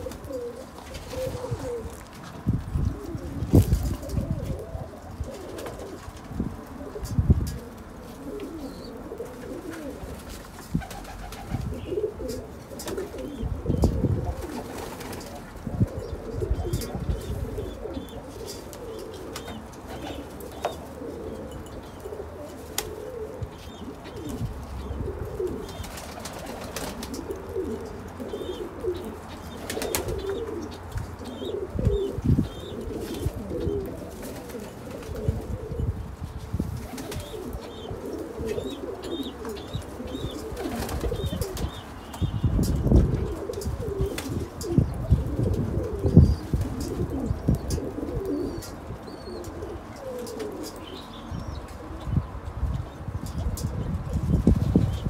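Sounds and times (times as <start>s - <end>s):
pigeons cooing: 0.0s - 55.0s
small birds chirping: 14.7s - 35.2s, 36.2s - 45.4s, 46.0s - 55.0s.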